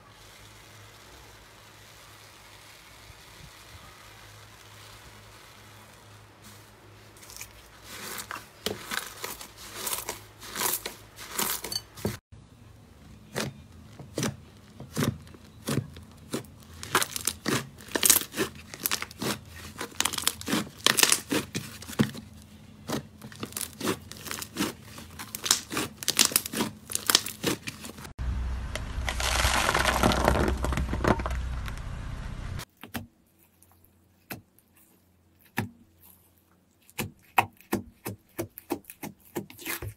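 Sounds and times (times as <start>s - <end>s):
slime popping and crackling: 14.9s - 21.9s, 23.3s - 28.0s, 28.8s - 31.9s
dense steady crackling: 28.0s - 32.7s.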